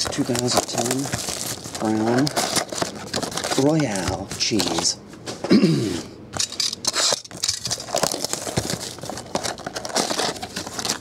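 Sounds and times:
plastic shrink-wrap tearing and crinkling: 0:00.0 - 0:04.0, 0:06.9 - 0:11.0
cardboard box being handled: 0:00.0 - 0:04.8, 0:07.7 - 0:11.0.

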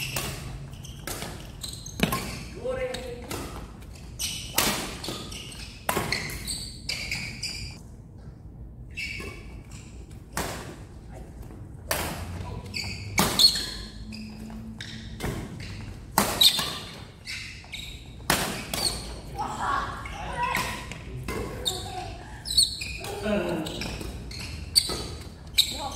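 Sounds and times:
rackets hitting shuttlecock: 0:00.0 - 0:07.3, 0:13.0 - 0:13.9, 0:15.1 - 0:17.1, 0:18.2 - 0:19.2
sneakers squeaking on court floor: 0:00.0 - 0:07.8, 0:08.9 - 0:10.3, 0:12.2 - 0:19.3, 0:20.0 - 0:25.9.

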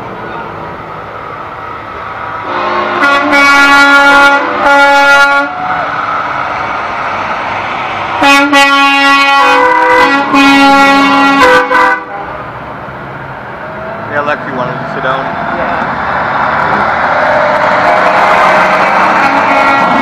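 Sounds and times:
truck traffic rumbling: 0:00.0 - 0:20.0
truck air horn blasts: 0:02.4 - 0:05.7, 0:08.2 - 0:12.4, 0:17.8 - 0:20.0.

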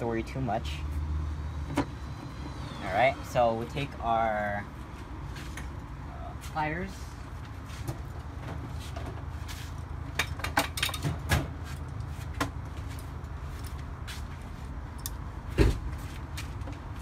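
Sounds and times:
tools clinking and rattling: 0:08.0 - 0:15.3.

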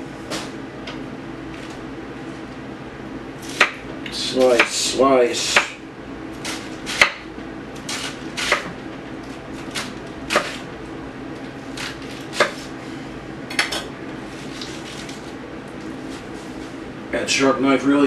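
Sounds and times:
knife slicing cabbage: 0:07.8 - 0:10.7, 0:11.6 - 0:12.8, 0:14.3 - 0:15.4.

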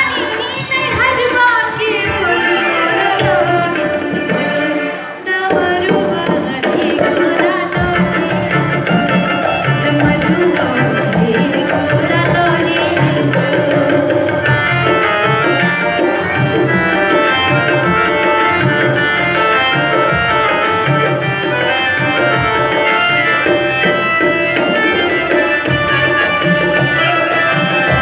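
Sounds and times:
woman singing devotional song: 0:00.0 - 0:14.4
keyboard music: 0:00.0 - 0:28.0
tabla: 0:00.0 - 0:28.0.

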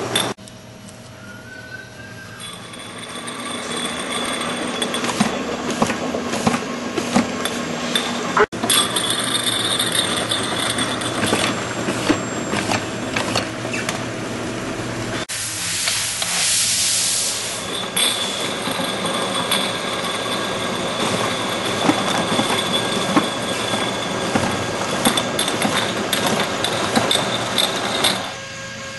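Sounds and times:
thin steady whine: 0:00.0 - 0:05.8, 0:07.4 - 0:28.9
hiss: 0:15.3 - 0:18.4
machine clatter with clicks: 0:17.9 - 0:28.3.

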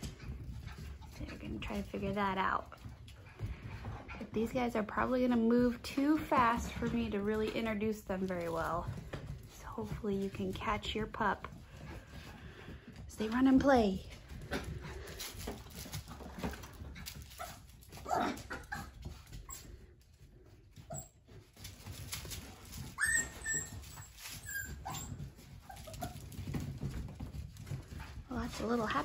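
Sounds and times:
puppies whimpering and yipping: 0:17.4 - 0:19.8, 0:22.7 - 0:26.2
high-pitched puppy squeal: 0:22.8 - 0:25.2.

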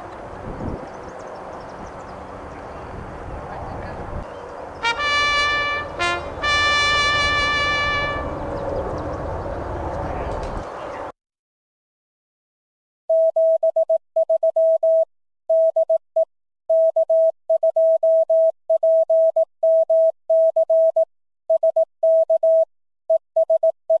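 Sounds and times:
morse code beeps: 0:13.1 - 0:16.0, 0:16.7 - 0:24.0.

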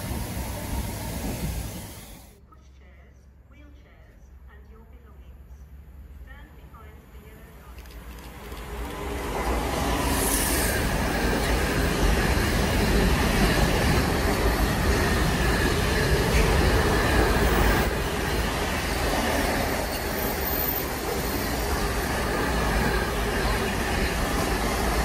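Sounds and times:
freight train passing: 0:00.0 - 0:02.3, 0:07.8 - 0:25.0
high hiss: 0:09.5 - 0:11.4.

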